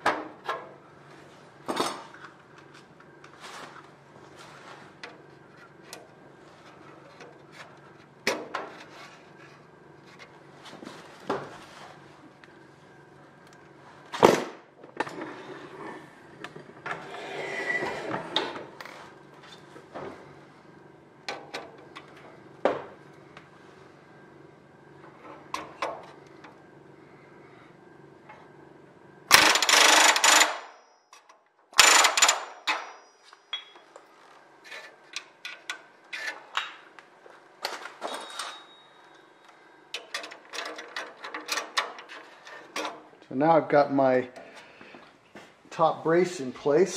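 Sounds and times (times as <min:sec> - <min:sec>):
pneumatic rivet puller bursts: 0:29.3 - 0:30.8, 0:31.8 - 0:32.9.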